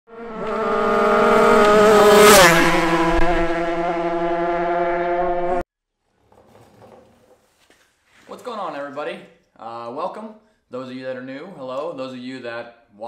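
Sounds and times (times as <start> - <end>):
kart engines passing by: 0.1 - 5.6.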